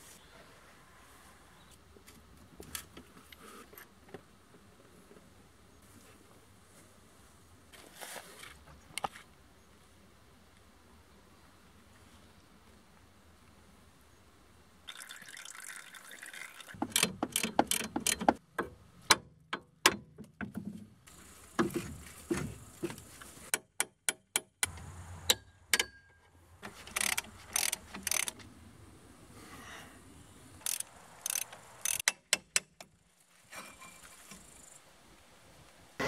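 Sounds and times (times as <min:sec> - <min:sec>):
fluid stream draining: 0:14.9 - 0:17.0
hand tools clicking on metal: 0:16.8 - 0:18.4, 0:26.7 - 0:28.4, 0:30.6 - 0:32.9.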